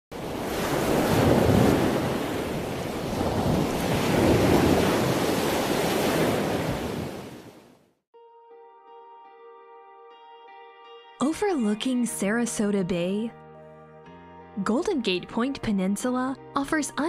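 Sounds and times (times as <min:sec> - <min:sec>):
ocean waves washing in: 0:00.1 - 0:08.0
soft music: 0:08.1 - 0:17.0.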